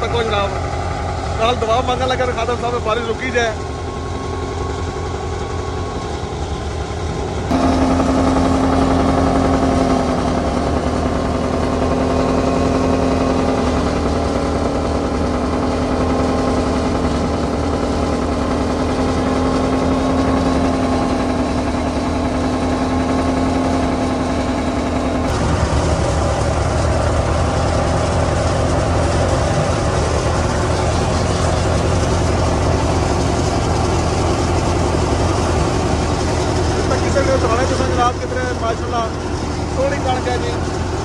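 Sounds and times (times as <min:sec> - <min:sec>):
thresher engine droning: 0:00.0 - 0:41.0.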